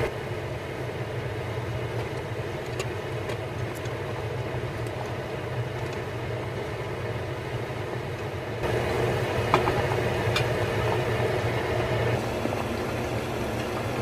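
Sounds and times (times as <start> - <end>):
chicken deep-frying in oil: 0.0 - 14.0.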